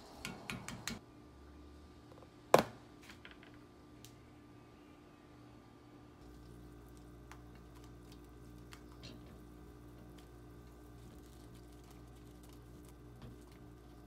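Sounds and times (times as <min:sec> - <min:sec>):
steady low hum: 0:03.6 - 0:14.0.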